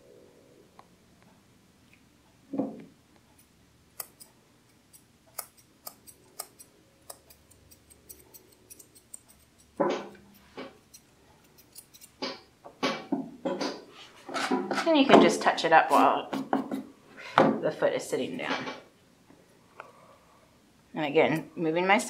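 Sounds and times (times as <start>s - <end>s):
scissors snipping fur: 4.0s - 4.3s, 4.9s - 12.4s.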